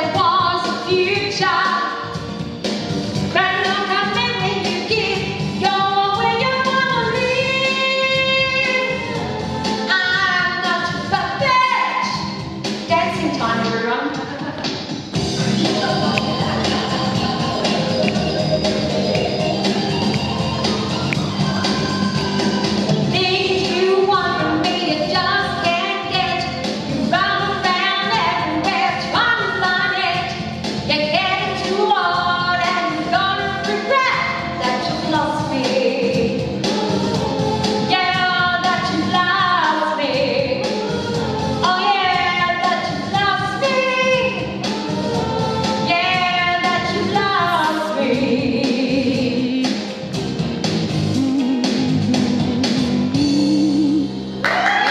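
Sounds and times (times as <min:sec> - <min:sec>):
woman singing into a microphone: 0:00.0 - 0:02.0, 0:03.3 - 0:09.2, 0:23.1 - 0:26.5, 0:27.1 - 0:49.9, 0:51.2 - 0:54.2
musical accompaniment: 0:00.0 - 0:54.9.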